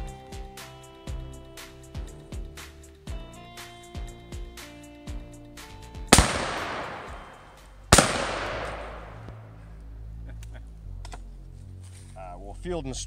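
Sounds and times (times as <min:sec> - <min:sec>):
shotgun blasts echoing: 0:06.2 - 0:09.4.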